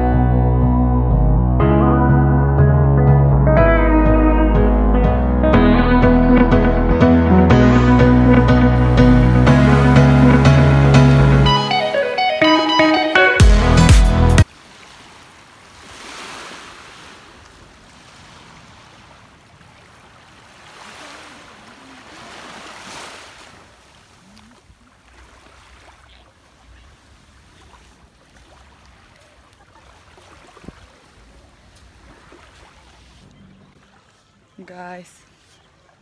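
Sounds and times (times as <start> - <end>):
small waves washing on shore: 14.4 - 36.0.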